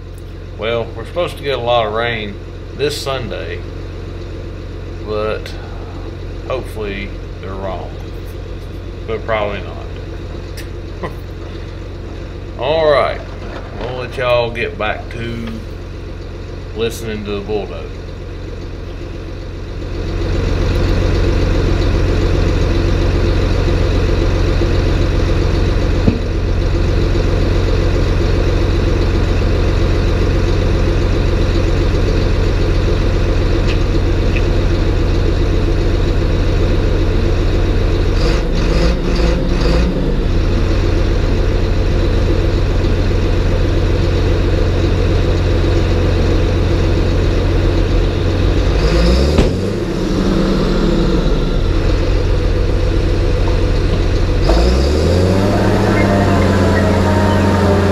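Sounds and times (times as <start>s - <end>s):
dozer diesel engine running: 0.0s - 57.9s
short knock: 26.0s - 26.3s.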